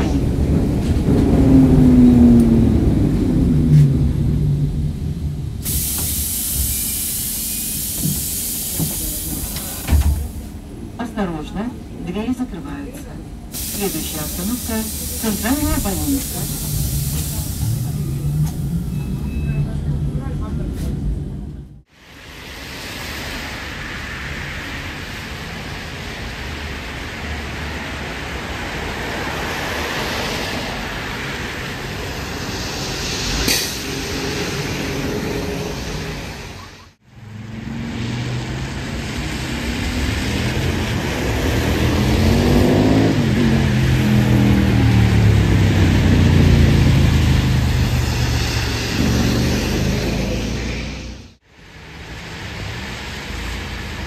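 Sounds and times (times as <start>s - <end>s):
trolleybus motor whine: 0.0s - 21.8s, 38.7s - 54.0s
rain hiss: 5.1s - 10.7s, 13.5s - 18.2s, 21.9s - 36.6s
wet tyres on road: 21.9s - 54.0s.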